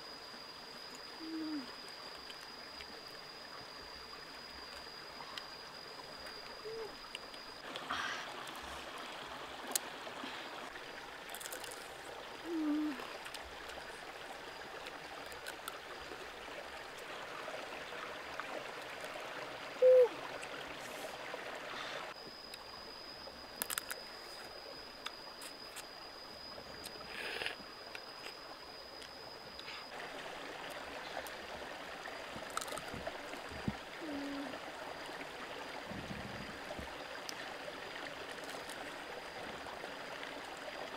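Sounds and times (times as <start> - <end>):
crab shell cracking clicks: 23.6 - 24.0.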